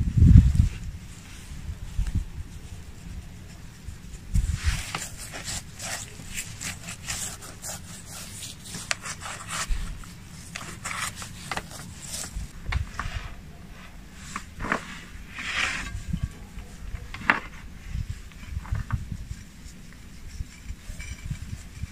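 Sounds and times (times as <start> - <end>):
hands rubbing and scraping: 1.2 - 17.6.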